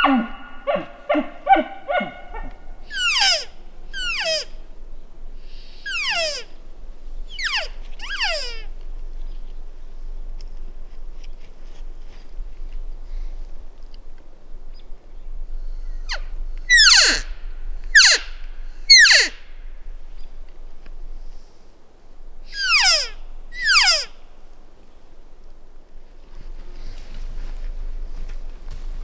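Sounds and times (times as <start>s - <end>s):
elk high squeals: 2.8s - 4.6s, 5.6s - 6.6s, 7.3s - 8.7s, 15.9s - 19.5s, 22.5s - 24.2s.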